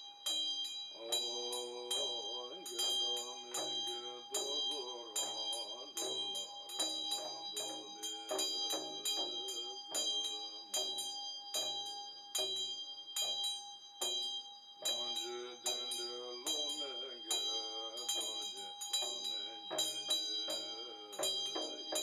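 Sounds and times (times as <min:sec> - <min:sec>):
hand bell ringing: 0:00.0 - 0:22.0
man chanting: 0:01.0 - 0:11.1, 0:14.8 - 0:22.0.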